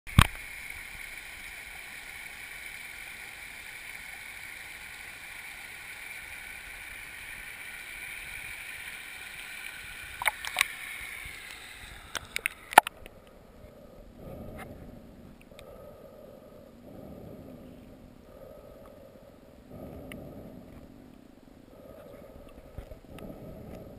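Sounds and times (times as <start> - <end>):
water rushing over rocks: 0.1 - 5.2, 5.8 - 13.0.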